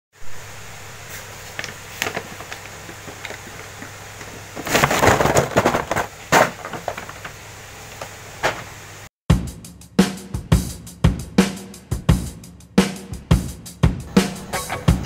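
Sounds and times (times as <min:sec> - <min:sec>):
cardboard boxes rustling and knocking: 0:01.1 - 0:07.4.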